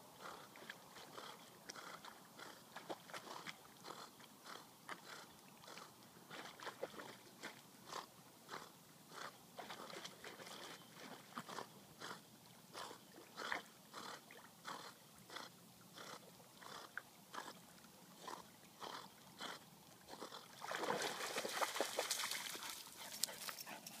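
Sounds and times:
puppy splashing and scrabbling: 20.6s - 24.0s.

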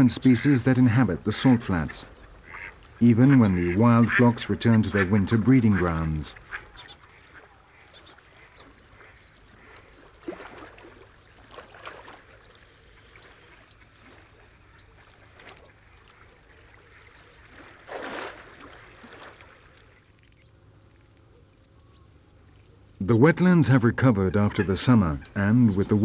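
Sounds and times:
soft duck calls: 0.0s - 10.8s
duck splashing in water: 5.8s - 20.0s.

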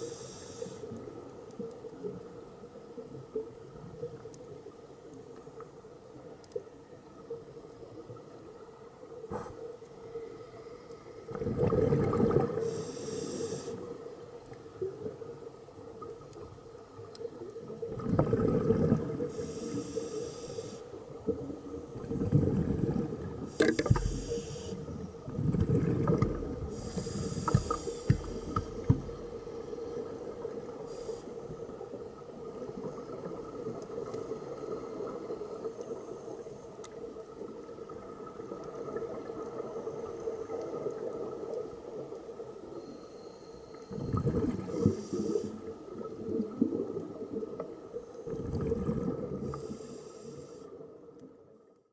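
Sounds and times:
regulator hissing inhale: 0.0s - 1.0s, 12.6s - 14.0s, 19.3s - 21.0s, 23.5s - 25.1s, 26.7s - 28.9s, 30.8s - 31.5s, 44.7s - 45.7s, 49.4s - 50.8s
faint steady hum: 0.0s - 51.9s
exhaled bubbles rumbling: 11.3s - 12.6s, 17.6s - 19.3s, 21.3s - 24.2s, 24.9s - 30.7s, 43.9s - 45.0s, 45.9s - 49.6s.

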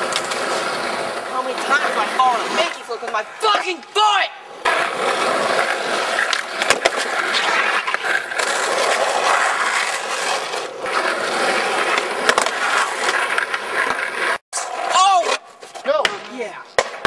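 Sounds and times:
skateboard clacks over cracks: 0.0s - 0.7s, 5.4s - 11.0s, 11.9s - 14.4s, 15.2s - 17.0s
skateboard wheels rolling on asphalt: 0.0s - 17.0s.

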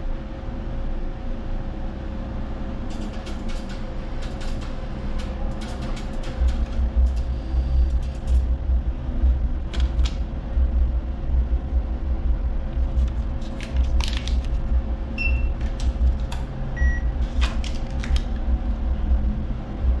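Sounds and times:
steady low hum: 0.0s - 20.0s
atm button beeps: 15.2s - 15.6s, 16.8s - 17.1s.

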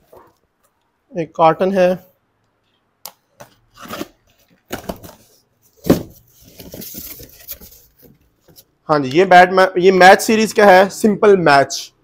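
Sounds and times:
cardboard rustling: 3.4s - 8.7s.

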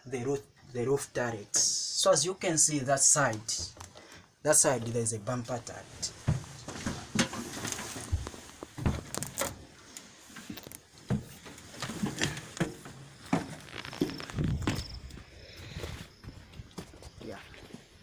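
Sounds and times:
footsteps on metal steps: 6.1s - 9.5s, 10.4s - 15.2s.

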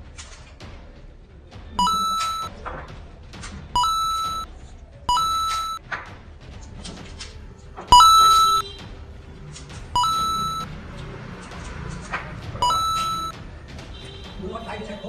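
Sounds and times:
electronic beeps: 1.8s - 2.5s, 3.8s - 4.5s, 5.1s - 5.8s, 7.9s - 8.6s, 10.0s - 10.7s, 12.6s - 13.3s.

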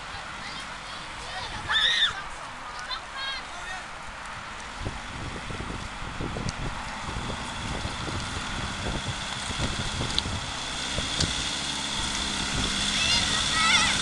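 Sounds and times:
off-road vehicle engine in mud: 0.0s - 14.0s
wind buffeting microphone: 3.9s - 14.0s.

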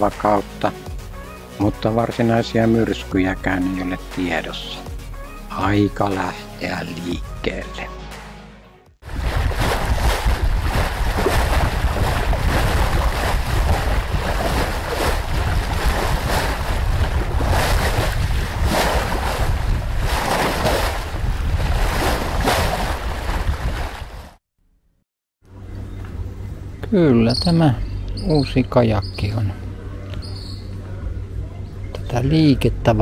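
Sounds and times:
wind buffeting microphone: 9.0s - 24.2s
waves washing and splashing: 9.0s - 24.4s.

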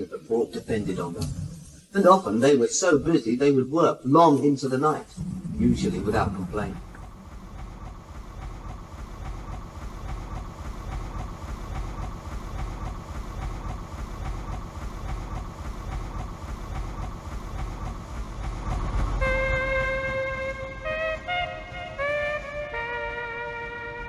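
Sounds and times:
steam engine chugging: 0.0s - 3.3s, 4.7s - 24.0s
music with held chord: 19.2s - 24.0s.

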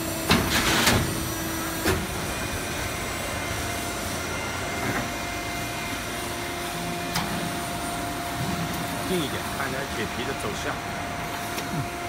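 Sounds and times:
machine hiss and clatter: 0.0s - 6.4s
steady machine hum: 0.0s - 12.0s.

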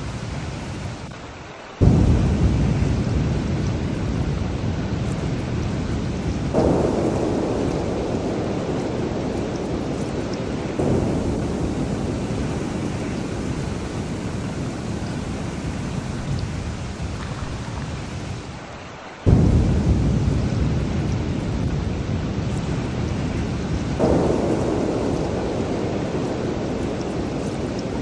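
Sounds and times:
heavy rain: 0.0s - 28.0s
rolling thunder: 1.8s - 18.6s, 19.3s - 28.0s.

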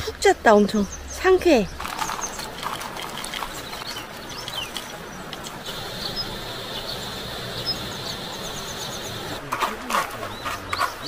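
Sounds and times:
small birds chirping: 0.0s - 11.0s
steady outdoor hiss: 0.0s - 11.0s
thin high hiss: 5.6s - 9.4s.

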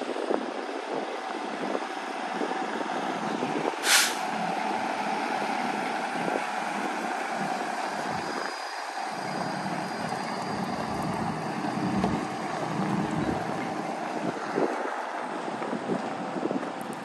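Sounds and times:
diesel truck engine running: 0.0s - 17.0s
air brake hiss: 3.8s - 4.4s.

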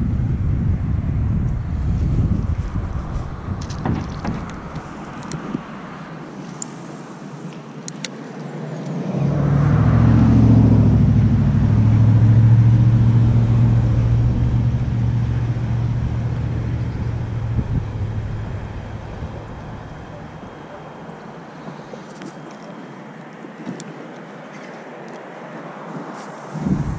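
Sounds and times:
vehicle engine passing by: 8.6s - 22.2s.

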